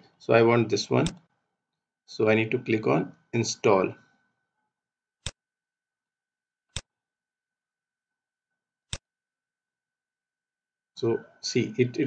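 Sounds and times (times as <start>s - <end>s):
computer mouse clicks: 1.0s - 1.3s.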